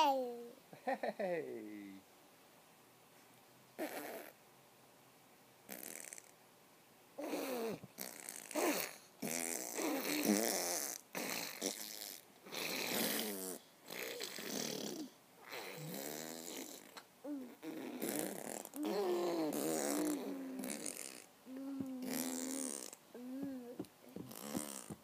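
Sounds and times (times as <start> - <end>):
blowing raspberries lip trills: 5.7 - 6.3, 7.2 - 25.0.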